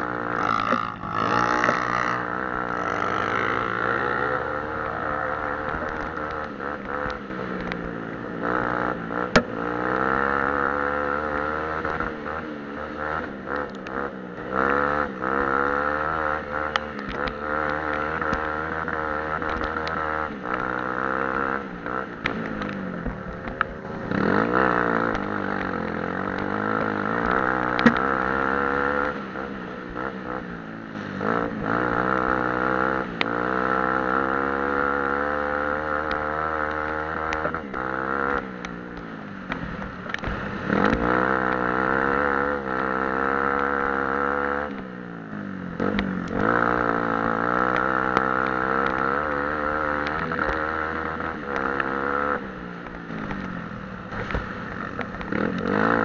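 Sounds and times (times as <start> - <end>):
off-road engine revving: 0.0 - 56.0.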